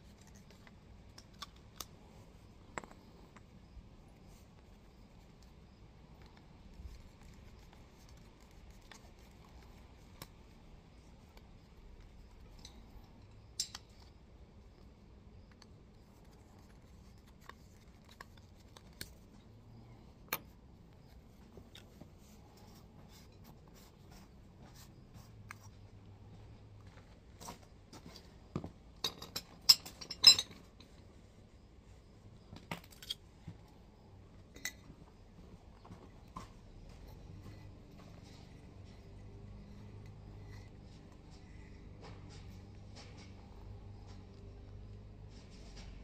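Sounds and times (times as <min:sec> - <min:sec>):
metal pipe fittings clinking: 0:12.5 - 0:14.1, 0:29.0 - 0:30.9.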